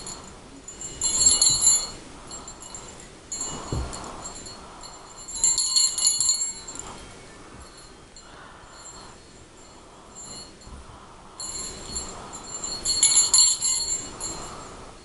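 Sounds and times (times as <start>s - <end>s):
sleigh bells jingling: 0.0s - 15.0s.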